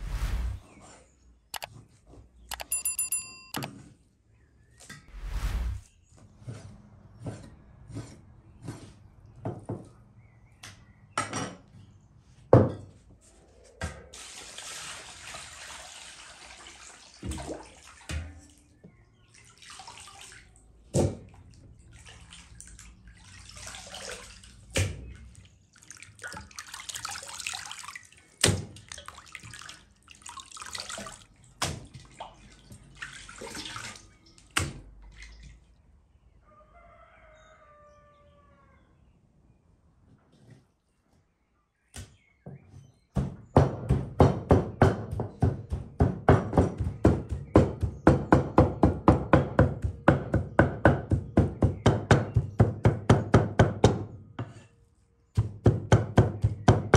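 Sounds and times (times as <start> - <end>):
water splashing in a bowl: 14.1 - 35.8
knife chopping meat on wooden board: 43.2 - 54.1, 55.3 - 56.9.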